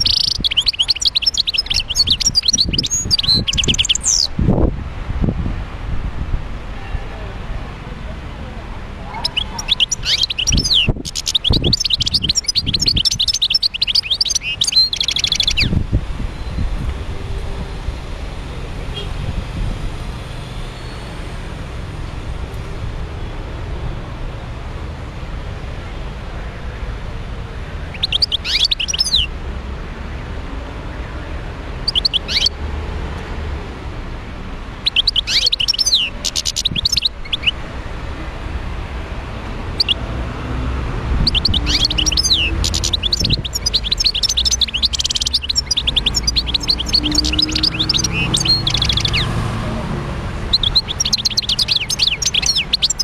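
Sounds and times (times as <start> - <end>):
goldfinch twittering song: 0.0 - 4.3, 9.1 - 16.7, 27.9 - 29.3, 31.8 - 32.6, 34.8 - 37.6, 39.7 - 40.0, 41.2 - 49.4, 50.5 - 53.0.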